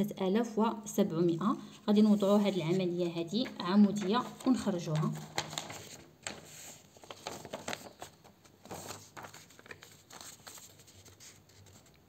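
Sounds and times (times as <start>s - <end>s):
paper rustling: 2.0s - 12.0s.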